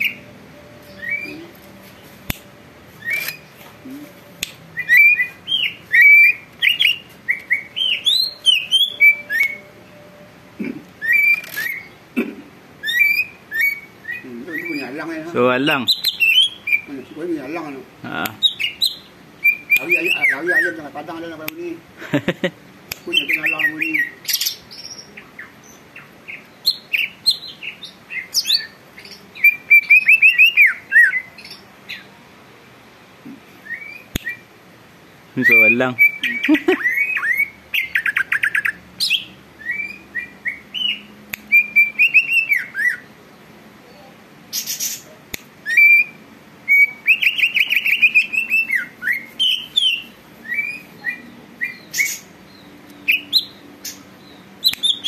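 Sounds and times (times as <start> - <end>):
bird singing whistled notes: 0.0 - 10.4, 11.0 - 12.0, 12.8 - 17.6, 18.4 - 21.2, 23.0 - 32.1, 33.6 - 34.4, 35.4 - 43.1, 45.6 - 55.0.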